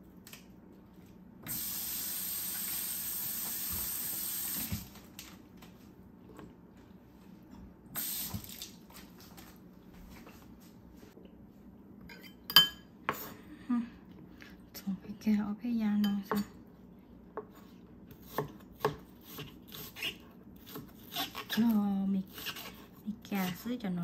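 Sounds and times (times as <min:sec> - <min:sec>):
kitchen tap running: 0:01.5 - 0:05.0, 0:08.0 - 0:08.8.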